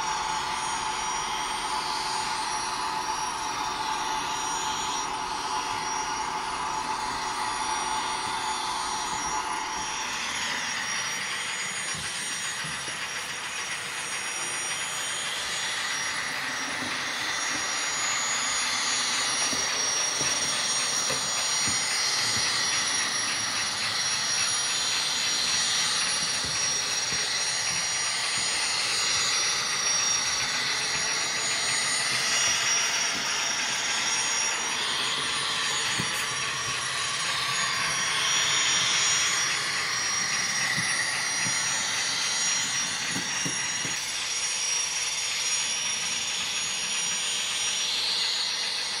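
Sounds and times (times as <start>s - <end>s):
model locomotive turbine whine: 0.0s - 49.0s.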